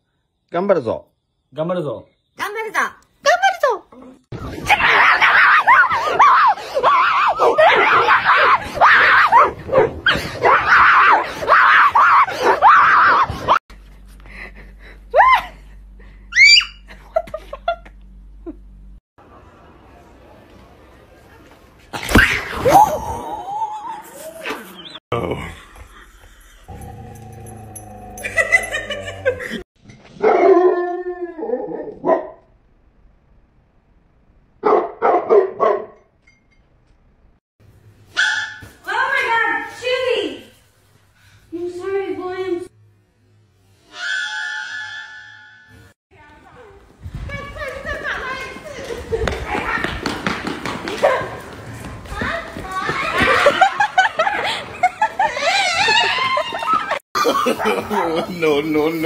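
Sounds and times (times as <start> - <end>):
dog barking: 30.2 - 30.8, 31.8 - 32.5, 34.6 - 36.0, 38.2 - 38.6.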